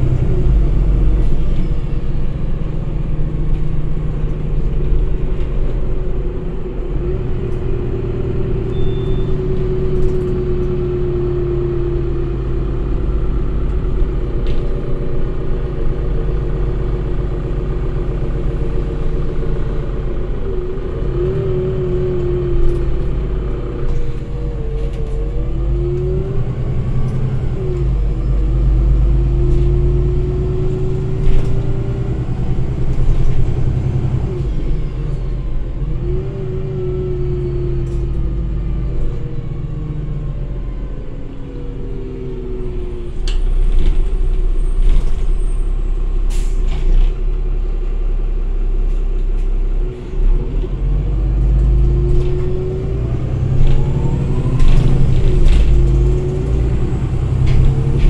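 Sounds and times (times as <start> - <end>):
bus engine humming: 0.0 - 58.0
gearbox whine: 8.4 - 16.2, 51.4 - 58.0.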